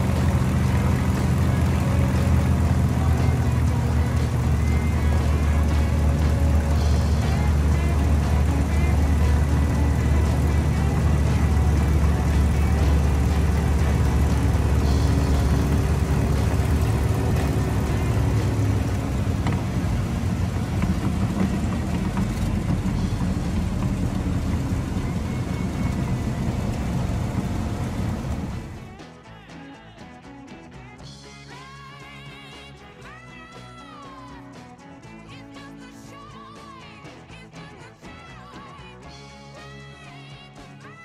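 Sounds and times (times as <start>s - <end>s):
propeller airplane engine: 0.0s - 29.1s.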